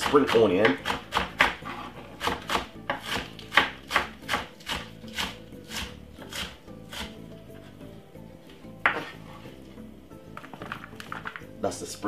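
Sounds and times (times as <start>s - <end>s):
knife chopping on cutting board: 0.0s - 7.2s.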